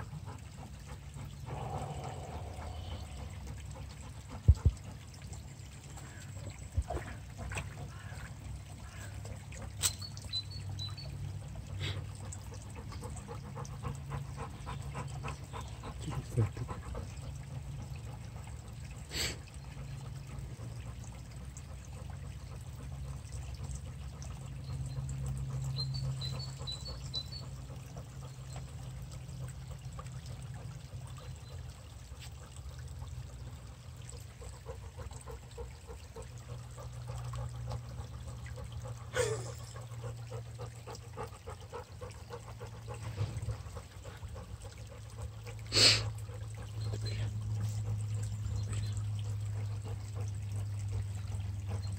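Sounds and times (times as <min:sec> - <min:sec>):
brook trickling: 0:00.0 - 0:51.9
dog wading in water: 0:00.0 - 0:51.9.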